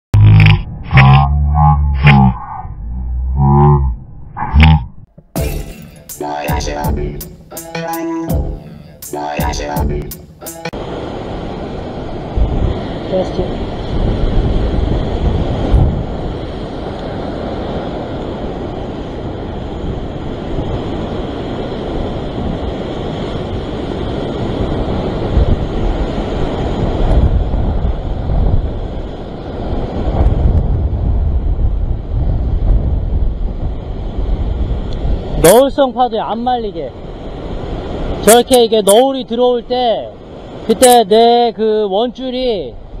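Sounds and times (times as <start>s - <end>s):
wind buffeting microphone: 11.0s - 38.3s.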